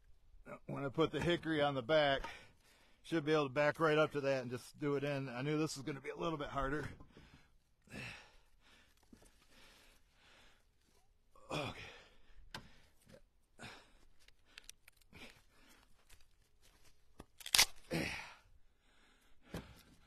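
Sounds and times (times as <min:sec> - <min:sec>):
man exhaling and sighing: 0:07.2 - 0:08.6, 0:11.4 - 0:15.6, 0:17.8 - 0:19.9.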